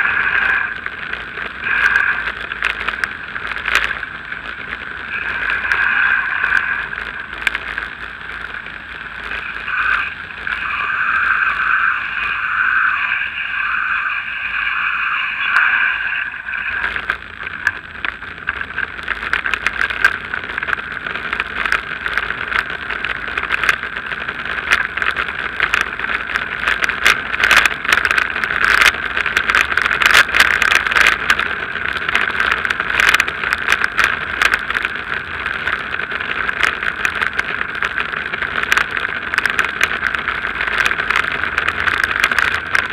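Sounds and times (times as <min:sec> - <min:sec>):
bike rattling: 0:00.0 - 0:42.9
tyre and wind noise: 0:16.7 - 0:42.9.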